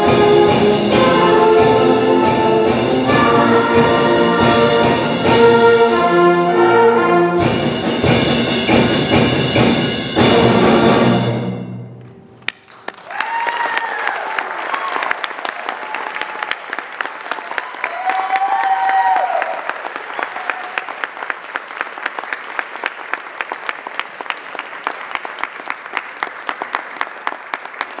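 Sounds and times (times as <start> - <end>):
audience applauding: 12.4 - 28.0
person cheering: 13.0 - 16.6, 17.4 - 20.9.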